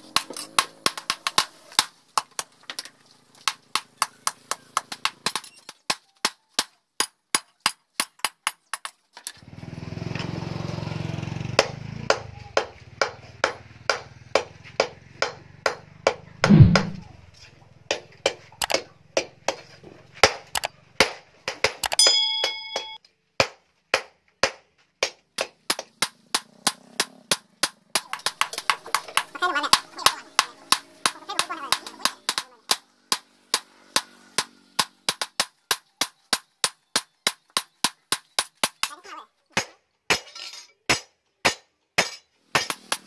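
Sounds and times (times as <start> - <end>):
heavy thump: 16.4 - 17.1
hammer striking hot metal on anvil: 22.0 - 23.0, 40.9 - 43.0
metallic ring: 22.0 - 23.0.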